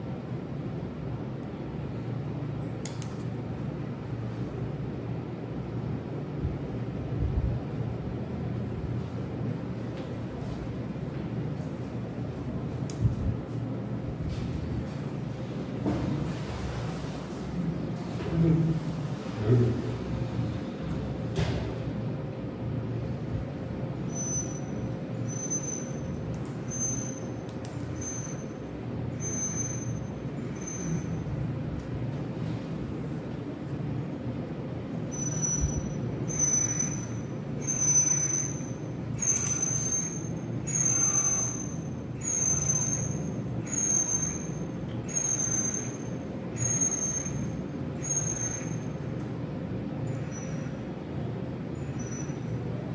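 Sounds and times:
steady low hum: 0.0s - 52.9s
high mechanical squeal: 24.0s - 31.4s, 35.1s - 49.0s, 50.0s - 50.8s, 51.7s - 52.6s.

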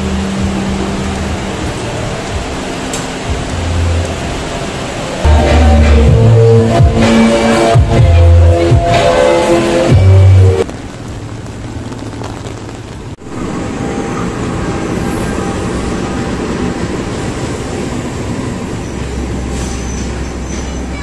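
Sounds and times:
train passing on rails: 0.0s - 21.0s
deep hum: 5.3s - 10.6s.

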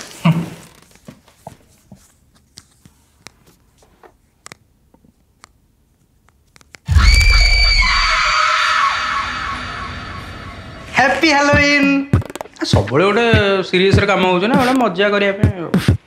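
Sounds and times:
horror sting boom and high tone: 6.9s - 11.2s.

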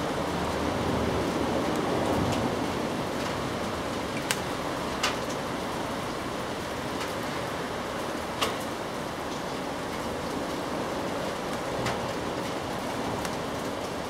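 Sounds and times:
steady rain falling: 0.0s - 14.0s.

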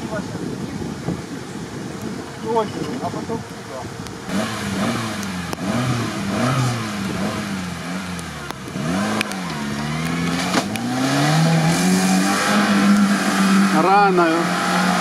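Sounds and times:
car engine revving: 4.0s - 15.0s.

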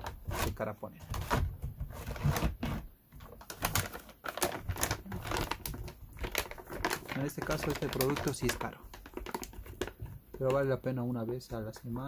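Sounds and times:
handling clicks and crinkles: 3.2s - 12.0s.

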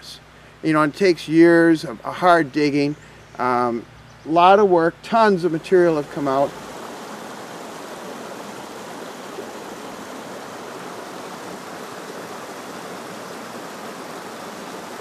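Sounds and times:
river rushing over rocks: 5.4s - 15.0s.

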